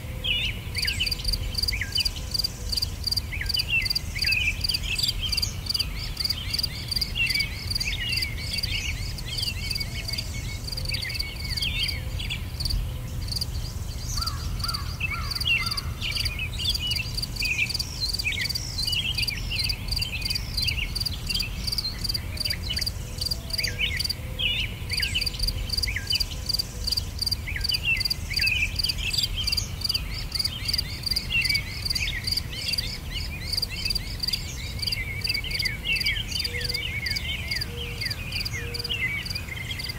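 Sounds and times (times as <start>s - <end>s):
insects chirping: 0.7s - 24.2s, 24.9s - 38.6s.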